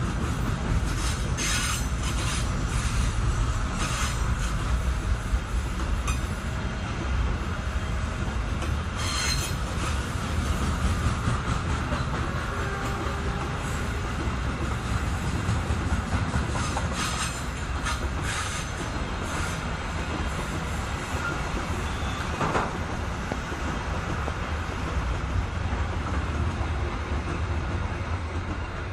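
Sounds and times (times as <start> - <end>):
freight wagons rumbling on rails: 0.0 - 28.9
high wheel squeals: 9.0 - 10.0, 21.1 - 22.5.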